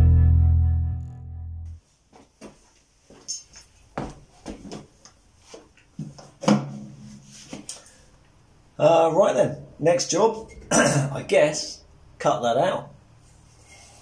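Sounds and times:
background music: 0:00.0 - 0:01.8
low hum: 0:00.0 - 0:01.8.

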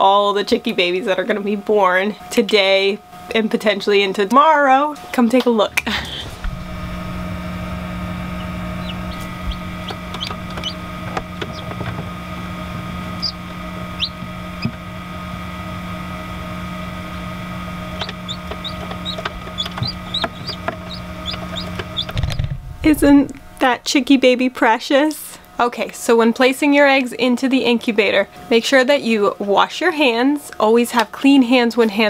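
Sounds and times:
steady electrical hum: 0:00.0 - 0:32.0
chick peeping: 0:08.2 - 0:12.0, 0:13.1 - 0:14.8, 0:17.9 - 0:22.4.

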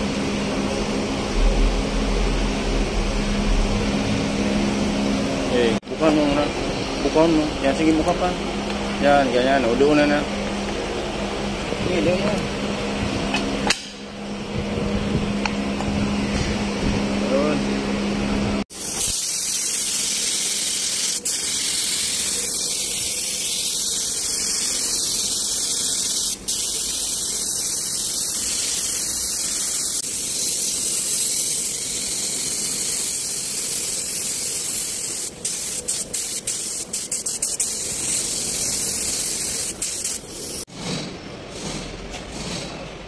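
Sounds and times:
paint spray gun hissing: 0:18.7 - 0:40.7.

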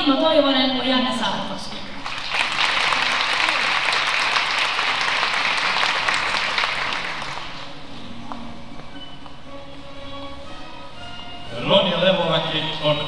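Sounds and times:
audience applauding: 0:02.0 - 0:07.7.

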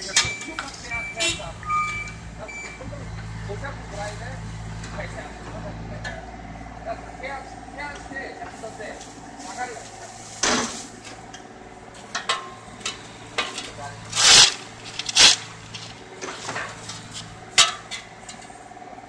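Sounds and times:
engine idling: 0:00.0 - 0:19.0
shovels scraping pavement: 0:13.4 - 0:17.4.

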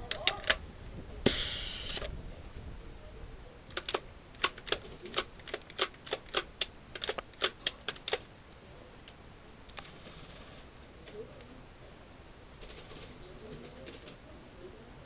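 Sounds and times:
short hiss: 0:01.2 - 0:02.2
airsoft guns firing: 0:01.3 - 0:02.1.

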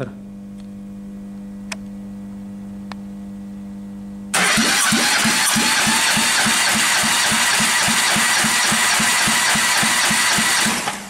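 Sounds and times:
engine cranking on starter: 0:04.4 - 0:11.0.

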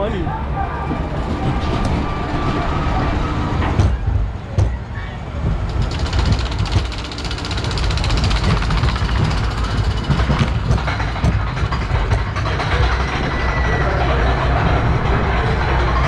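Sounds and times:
low rumble of lift drive: 0:00.0 - 0:16.0
rapid clicking of lift chain: 0:05.4 - 0:16.0.

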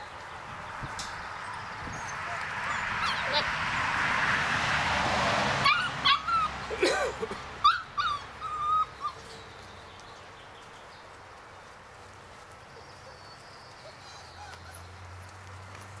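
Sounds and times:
faint outdoor background: 0:00.0 - 0:16.0
puppy whimpering: 0:01.9 - 0:03.5, 0:05.6 - 0:06.6, 0:07.6 - 0:09.3, 0:13.8 - 0:14.9.

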